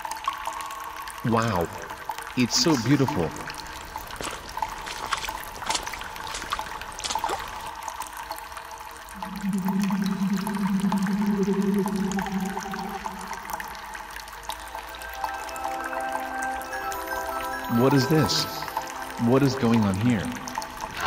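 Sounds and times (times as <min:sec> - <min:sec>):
small splashes and drips: 0:00.0 - 0:21.0
water trickling: 0:00.0 - 0:21.0
steady low hum: 0:09.2 - 0:13.9.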